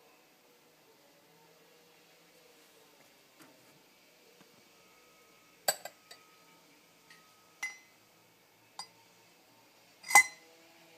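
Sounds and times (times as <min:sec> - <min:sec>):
spoon clinking in ceramic mug: 0:05.7 - 0:06.2, 0:07.1 - 0:07.9, 0:10.0 - 0:10.4.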